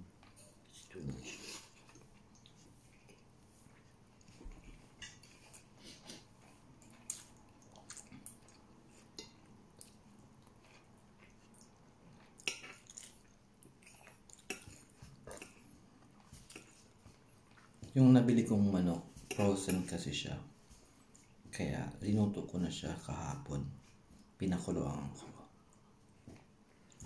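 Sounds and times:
chewing and lip smacks: 0:01.5 - 0:18.0.

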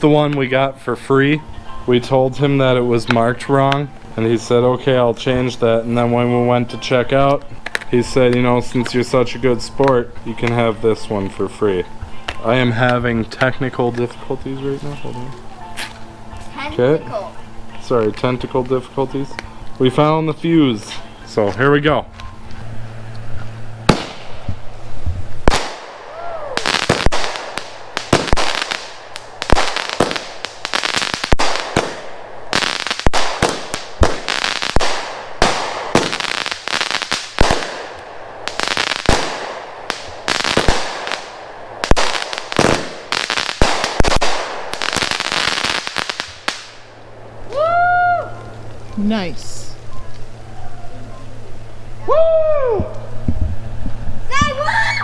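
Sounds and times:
firework aerial bursts: 0:22.6 - 0:47.5
firework crackling: 0:22.7 - 0:49.8
firework launch thumps: 0:23.8 - 0:24.6.

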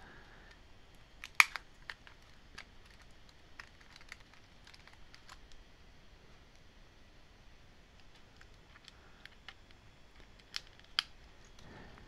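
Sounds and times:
plastic keyboard key clicks: 0:01.2 - 0:05.4, 0:08.4 - 0:11.1.

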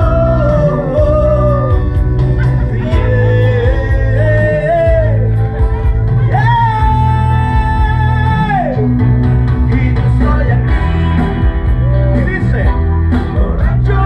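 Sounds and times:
man singing through a microphone: 0:00.0 - 0:05.5, 0:06.2 - 0:08.9, 0:09.5 - 0:11.3, 0:12.0 - 0:14.0
amplified music with heavy bass: 0:00.0 - 0:14.0.

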